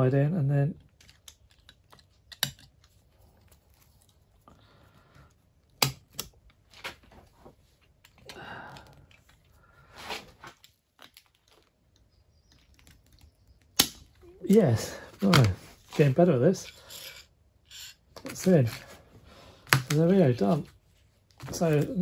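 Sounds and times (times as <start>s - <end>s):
metal scraping: 16.0s - 18.1s.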